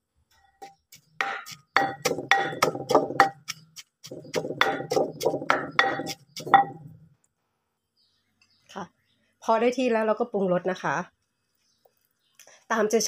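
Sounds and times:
pestle pounding in mortar: 0.9s - 7.0s.

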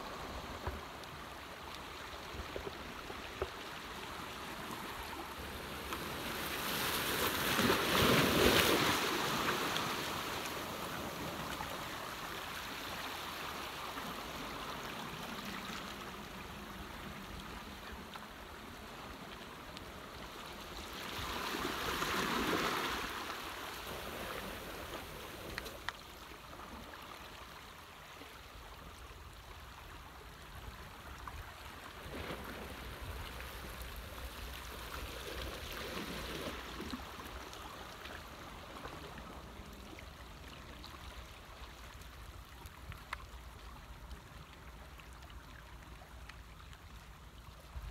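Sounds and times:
seawater sloshing and trickling: 0.0s - 28.6s.

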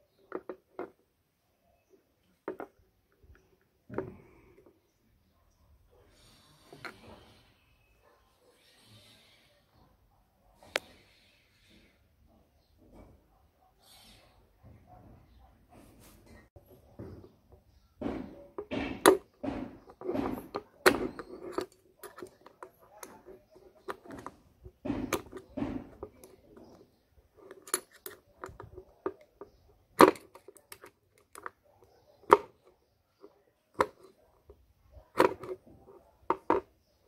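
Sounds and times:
screwdriver scraping metal: 18.6s - 31.5s.

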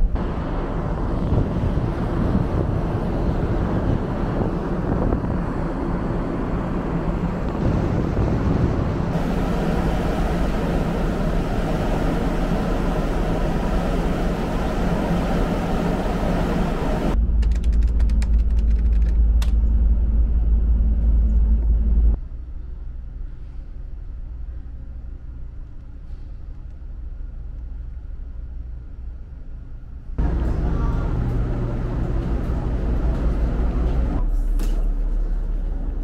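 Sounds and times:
ferry running noise: 0.0s - 17.2s, 30.2s - 36.0s
wind rushing: 0.0s - 17.2s
deep low rumble: 0.0s - 36.0s.

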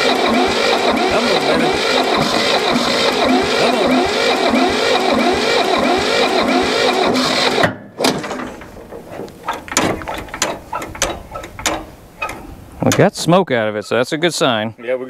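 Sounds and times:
starter motor cranking diesel engine: 0.0s - 13.2s
light clicks and knocks: 8.2s - 13.1s.

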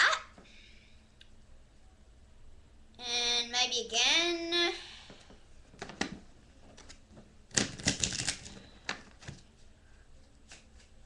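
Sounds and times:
playing cards being shuffled: 5.8s - 9.6s, 10.3s - 11.0s.

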